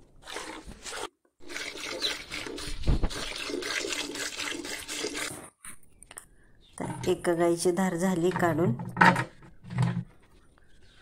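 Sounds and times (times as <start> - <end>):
milk squirting into a bucket: 0.1 - 5.4.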